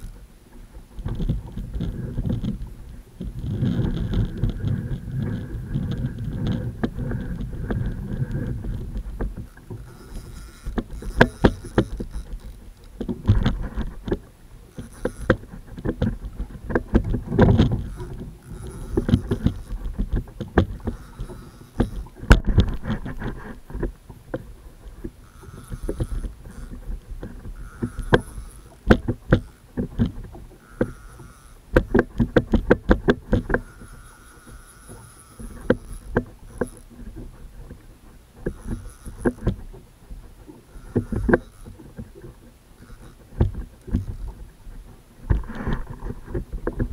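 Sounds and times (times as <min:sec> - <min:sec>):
low rumble of water: 0:00.0 - 0:46.9
paddle knocking on plastic kayak: 0:15.3 - 0:26.2, 0:26.8 - 0:31.0, 0:31.7 - 0:33.6.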